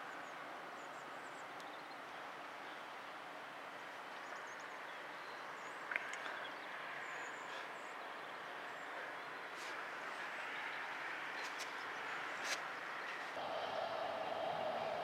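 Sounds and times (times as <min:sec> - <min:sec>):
distant locomotive rumble and hiss: 0:00.0 - 0:15.0.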